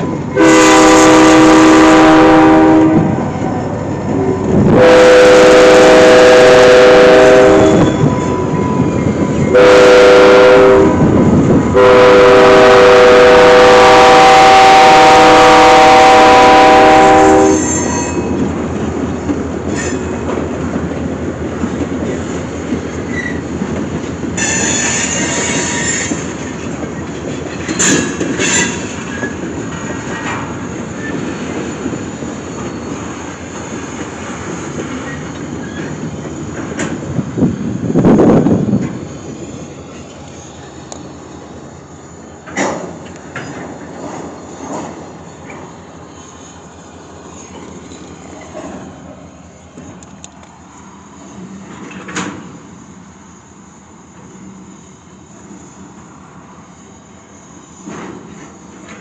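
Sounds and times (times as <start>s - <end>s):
train rolling rumble: 0.0s - 59.0s
locomotive air horn blasts: 0.4s - 3.1s, 4.7s - 8.1s, 9.5s - 11.0s, 11.8s - 18.1s
high wheel squeal: 7.2s - 9.6s, 17.3s - 18.4s, 19.7s - 20.2s, 22.9s - 23.5s, 24.4s - 26.3s, 27.0s - 29.4s, 30.9s - 33.2s, 35.0s - 36.6s
wheels clicking over rail joints: 17.6s - 41.1s, 42.3s - 46.6s, 47.3s - 50.6s, 51.3s - 52.7s, 57.8s - 59.0s.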